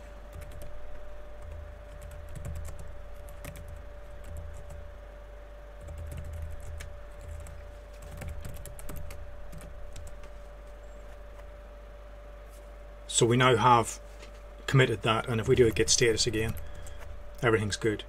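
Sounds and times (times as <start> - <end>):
faint steady hum: 0.0 - 18.0
computer keyboard typing: 1.4 - 4.8, 5.8 - 10.3, 15.4 - 17.1.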